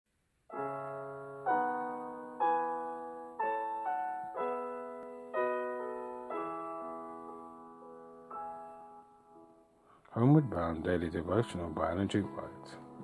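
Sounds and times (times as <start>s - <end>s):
slow gentle piano music: 0.4s - 13.0s.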